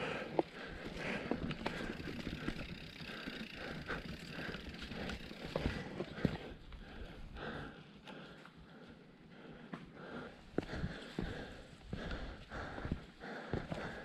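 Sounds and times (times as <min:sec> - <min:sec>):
mountain bike rattling: 0:00.0 - 0:07.8
person breathing: 0:00.0 - 0:14.0
footsteps on dirt trail: 0:00.1 - 0:07.6, 0:09.6 - 0:14.0.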